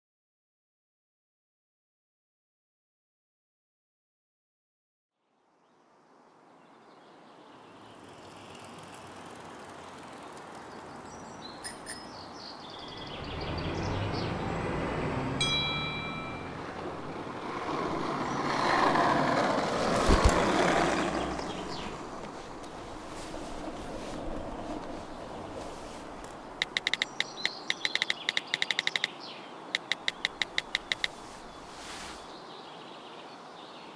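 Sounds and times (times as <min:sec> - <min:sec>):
passing vehicles rumbling: 0:07.9 - 0:32.4.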